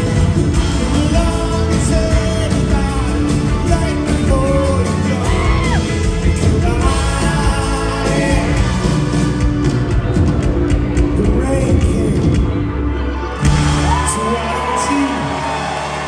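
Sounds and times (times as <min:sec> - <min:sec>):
lead vocalist singing: 0:00.0 - 0:09.6, 0:11.0 - 0:12.6
live rock band playing: 0:00.0 - 0:16.0.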